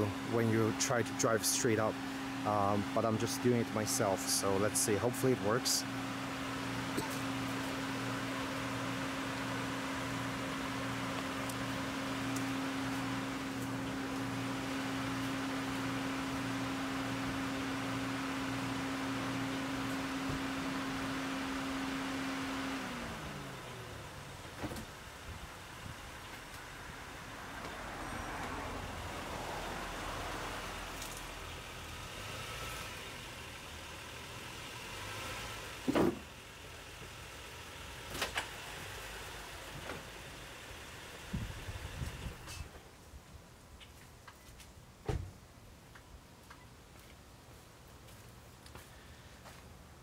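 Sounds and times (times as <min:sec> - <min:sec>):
car engine idling: 0:00.0 - 0:41.9.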